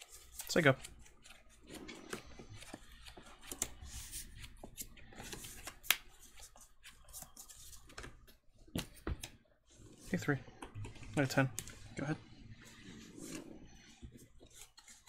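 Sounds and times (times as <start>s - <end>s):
cards clicking and scraping: 0.0s - 9.4s, 10.2s - 15.0s.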